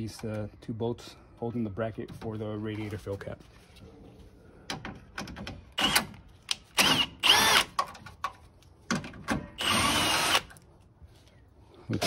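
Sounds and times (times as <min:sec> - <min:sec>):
cordless drill motor whine: 0:06.8 - 0:07.6, 0:09.6 - 0:10.5.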